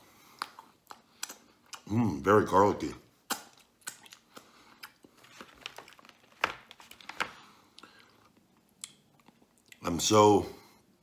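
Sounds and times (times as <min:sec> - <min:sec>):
man chewing with lip smacks: 0:00.0 - 0:01.9, 0:03.1 - 0:06.1, 0:07.7 - 0:09.8.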